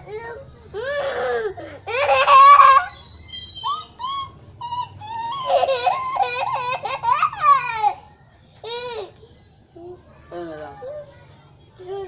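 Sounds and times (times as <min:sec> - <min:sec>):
girl laughing: 0:03.9 - 0:08.0.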